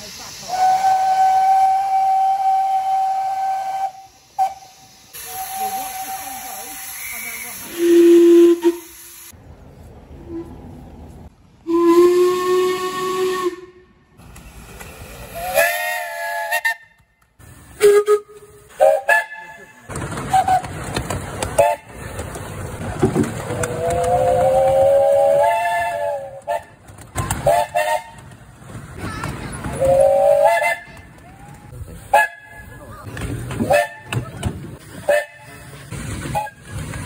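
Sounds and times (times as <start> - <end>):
steam hissing: 0.0 - 9.4, 14.2 - 16.7
steam locomotive whistle: 0.4 - 9.2, 11.6 - 13.9, 15.3 - 17.0, 17.8 - 19.7, 23.7 - 26.7, 27.4 - 28.2, 29.8 - 30.9, 35.0 - 35.5, 36.3 - 36.7.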